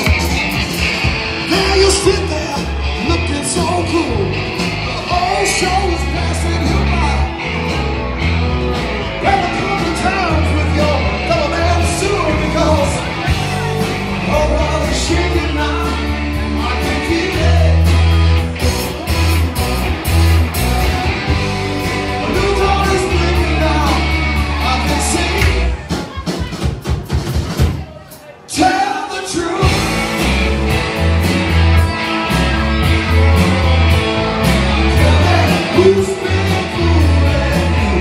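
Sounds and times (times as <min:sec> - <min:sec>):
electric guitars: 0:00.0 - 0:26.0, 0:29.3 - 0:38.0
bass line: 0:00.0 - 0:26.7, 0:28.6 - 0:38.0
drum kit: 0:00.0 - 0:38.0
man singing: 0:01.4 - 0:07.5, 0:09.2 - 0:18.2, 0:21.8 - 0:26.0, 0:28.4 - 0:30.4, 0:34.2 - 0:38.0.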